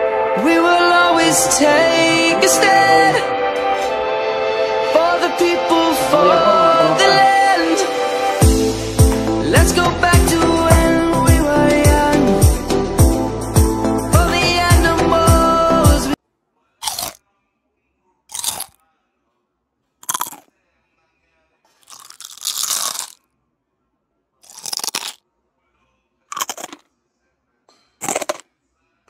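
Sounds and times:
food crunching while chewed: 0:16.8 - 0:17.2, 0:18.3 - 0:18.8, 0:20.0 - 0:20.5, 0:21.7 - 0:23.2, 0:24.4 - 0:25.2, 0:26.3 - 0:26.9, 0:28.0 - 0:28.4.

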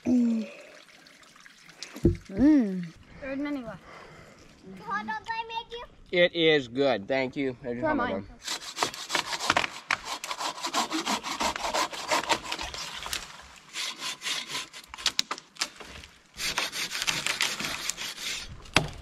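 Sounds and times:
hand saw cutting wood: 0:08.4 - 0:15.3, 0:16.4 - 0:18.9.

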